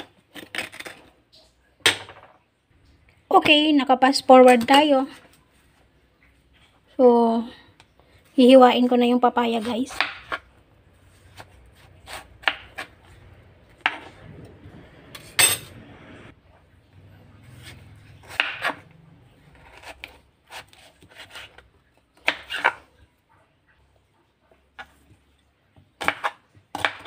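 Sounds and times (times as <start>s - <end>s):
knife slicing papaya: 17.4s - 22.9s.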